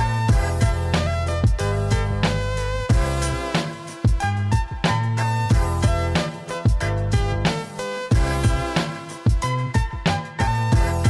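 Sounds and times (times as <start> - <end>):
background music with drums and bass: 0.0 - 11.0.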